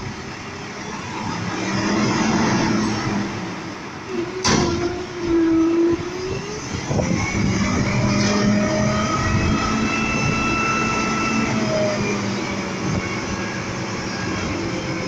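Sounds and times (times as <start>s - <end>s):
garbage truck engine revving: 1.1s - 15.0s
hydraulic whine: 4.0s - 15.0s.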